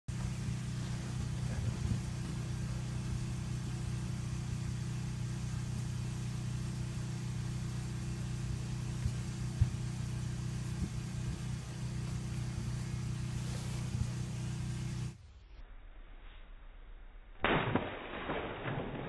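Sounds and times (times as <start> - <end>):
motor humming: 0.1 - 15.3.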